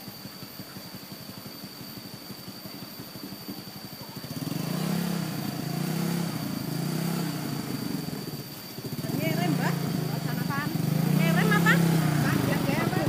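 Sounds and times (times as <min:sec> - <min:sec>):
scooter engine revving: 0:04.1 - 0:13.0.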